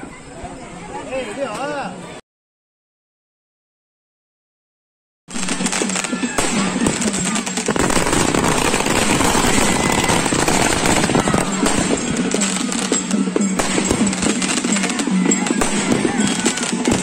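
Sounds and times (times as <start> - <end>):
fireworks cracking and banging: 5.3 - 17.0.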